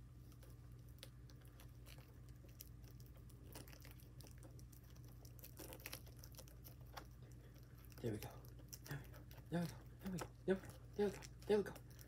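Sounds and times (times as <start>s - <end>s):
low room hum: 0.0s - 12.0s
packaging crinkling: 0.3s - 10.2s.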